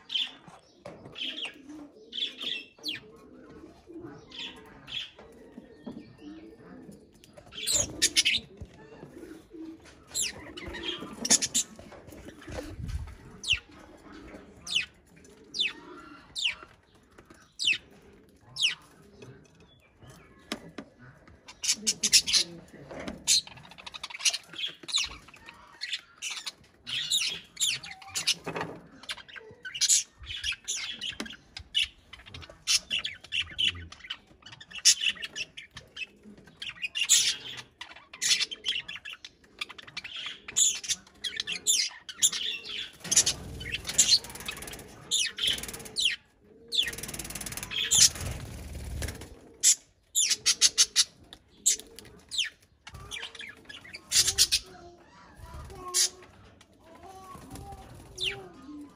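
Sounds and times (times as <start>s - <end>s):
budgerigars squawking and chirping: 0.0s - 5.2s, 7.4s - 20.6s, 21.2s - 56.3s
wings flapping: 46.8s - 49.4s.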